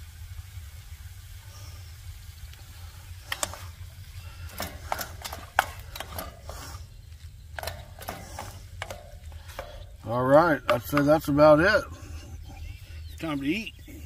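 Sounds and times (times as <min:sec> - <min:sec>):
low steady rumble: 0:00.0 - 0:14.0
spatula scraping frying pan: 0:03.3 - 0:07.0, 0:07.6 - 0:11.2.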